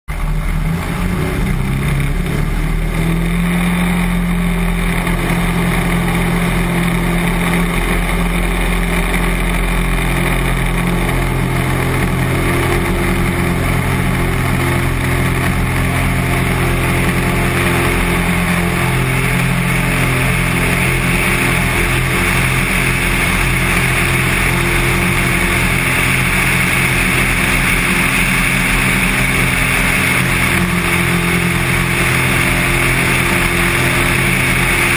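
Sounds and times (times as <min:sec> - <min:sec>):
light aircraft engine and propeller: 0:00.1 - 0:34.9.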